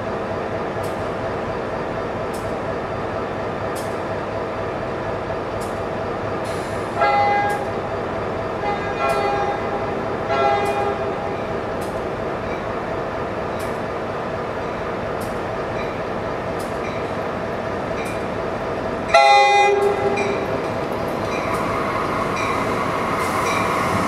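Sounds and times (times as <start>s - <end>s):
train rumbling: 0.0s - 24.0s
train horn blasts: 7.0s - 7.7s, 8.6s - 11.1s, 19.1s - 20.4s.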